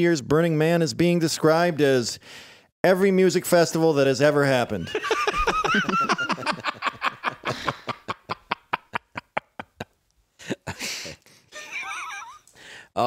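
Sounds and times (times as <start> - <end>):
person laughing: 4.9 - 12.5
person chuckling: 5.1 - 12.5.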